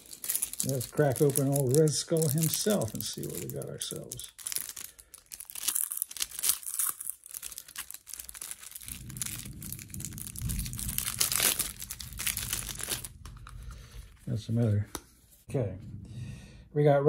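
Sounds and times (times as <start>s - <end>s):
plastic wrap crinkling: 0.0s - 14.5s
low rumble: 8.3s - 14.7s, 15.5s - 16.8s.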